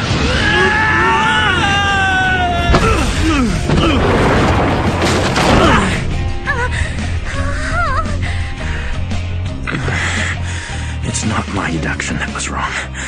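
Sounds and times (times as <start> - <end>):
furniture crashing and clattering: 3.6 - 6.1.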